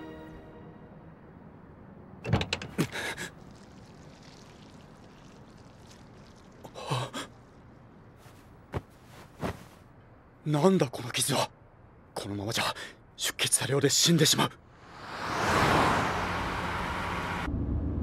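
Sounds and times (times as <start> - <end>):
car door opening and shutting: 2.2 - 2.8.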